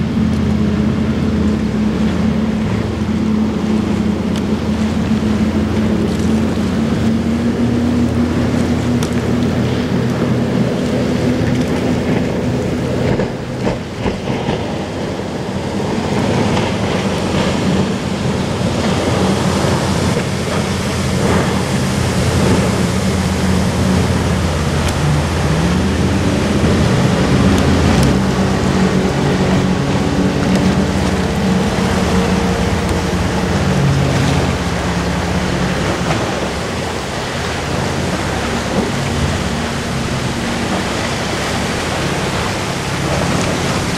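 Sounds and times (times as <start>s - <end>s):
boat engine running: 0.0s - 43.9s
water spray hissing on lake: 2.8s - 43.9s.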